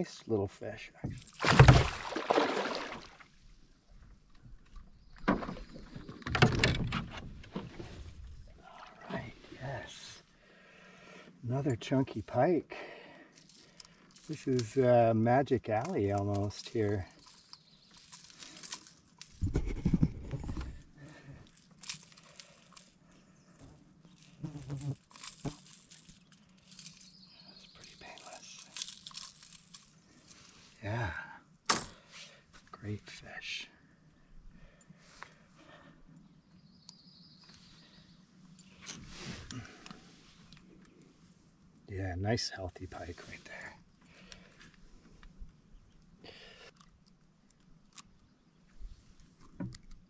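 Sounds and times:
water splashing around a canoe: 1.1 - 3.6, 5.1 - 6.6.

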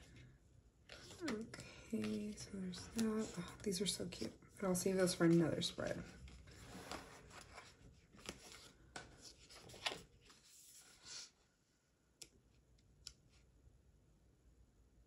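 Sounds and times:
paper pages rustling and turning: 0.8 - 11.3.

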